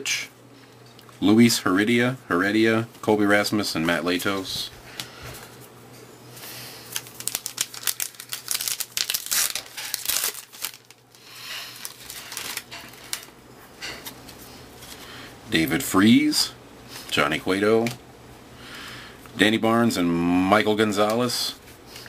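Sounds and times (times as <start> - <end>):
wrapper crinkling and tearing: 6.8 - 13.4
trading cards rustling and clicking: 6.9 - 11.0, 11.7 - 13.3.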